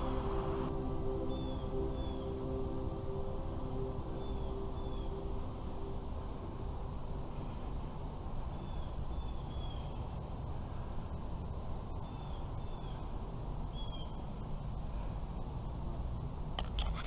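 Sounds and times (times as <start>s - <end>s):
bird chirping: 0.0s - 6.0s, 8.5s - 10.3s, 11.9s - 14.7s
low outdoor rumble: 0.0s - 17.0s.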